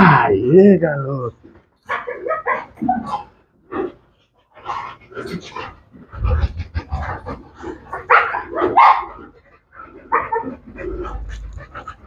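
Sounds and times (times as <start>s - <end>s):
dog barking: 1.9s - 3.3s, 8.0s - 9.2s.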